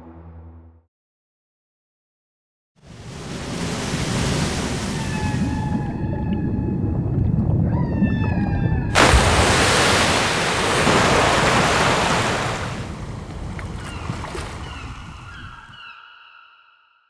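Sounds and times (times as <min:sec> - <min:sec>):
low rumble of surf: 0:02.8 - 0:15.7
loud rush of water-like noise: 0:02.9 - 0:05.7, 0:08.9 - 0:13.4.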